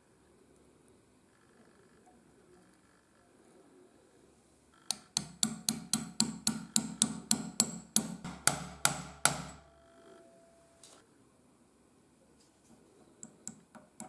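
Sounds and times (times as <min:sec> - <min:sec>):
hammer tapping metal punch: 0:04.9 - 0:09.7.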